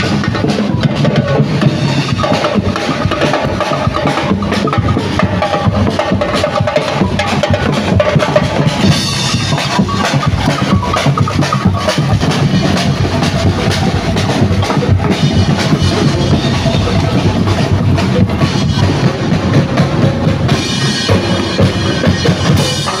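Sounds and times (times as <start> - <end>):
loud music with drum beat: 0.0 - 23.0.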